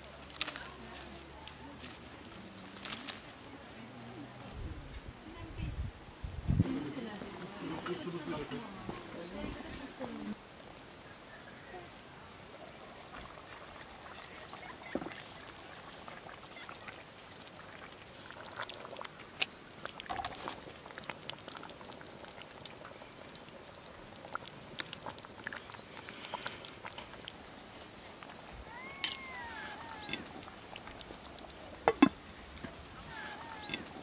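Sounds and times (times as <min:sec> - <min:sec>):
stew sloshing: 0:12.8 - 0:34.0
ladle scraping pot: 0:28.9 - 0:34.0.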